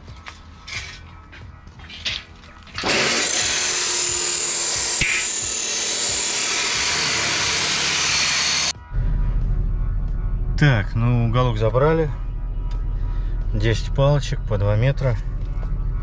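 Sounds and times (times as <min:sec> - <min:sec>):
power tool grinding steel: 0:02.8 - 0:08.7.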